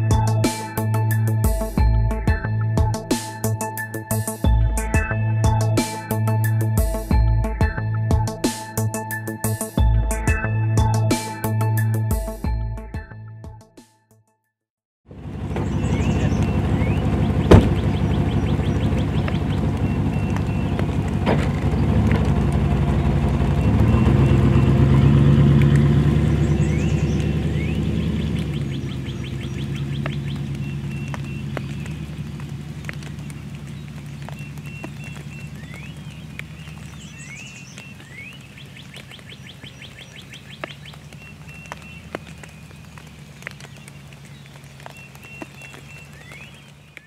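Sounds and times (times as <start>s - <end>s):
truck engine revving: 15.1s - 37.6s
songbird trill: 15.5s - 22.0s, 22.7s - 47.0s
bird chirps and whistles: 15.7s - 20.8s, 26.5s - 32.0s, 34.3s - 42.1s.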